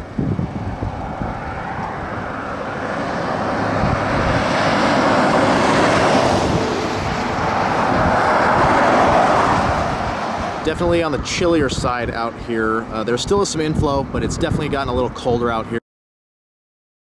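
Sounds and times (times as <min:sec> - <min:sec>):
rushing noise: 0:00.0 - 0:12.4
wind buffeting microphone: 0:00.0 - 0:15.7.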